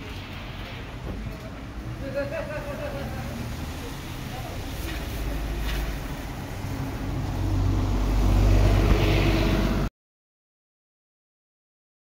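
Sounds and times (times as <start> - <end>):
passing vehicle engine rumbling: 0.0 - 9.9.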